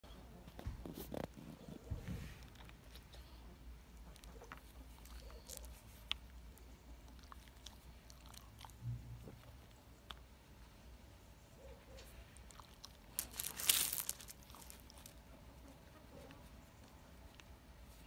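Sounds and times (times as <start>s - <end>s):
dog chewing on a twig: 3.9s - 10.3s, 12.1s - 15.3s.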